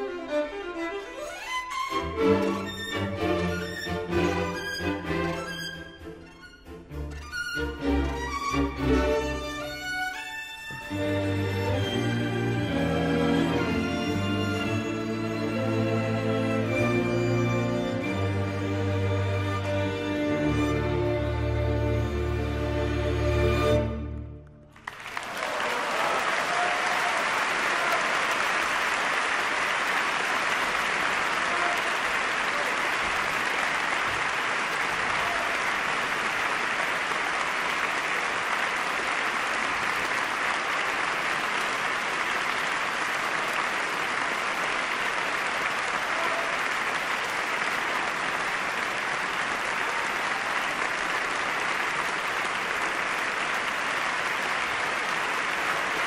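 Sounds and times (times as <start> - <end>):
string ensemble chord: 1.8 - 24.5
audience applauding: 7.2 - 20.8, 24.7 - 56.0.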